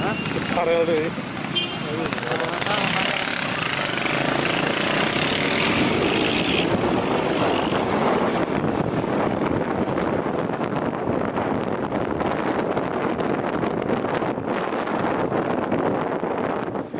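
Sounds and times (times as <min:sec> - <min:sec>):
motorcycle engine: 0:00.0 - 0:10.1
wind buffeting microphone: 0:02.0 - 0:16.9.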